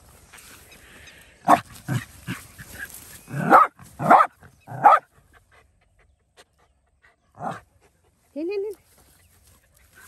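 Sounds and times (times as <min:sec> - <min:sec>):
dog barking: 0:03.4 - 0:05.1.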